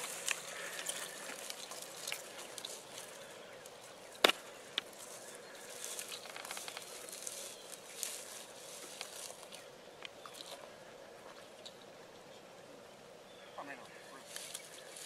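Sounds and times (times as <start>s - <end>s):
footsteps through grass: 0.0s - 10.6s, 14.1s - 15.0s.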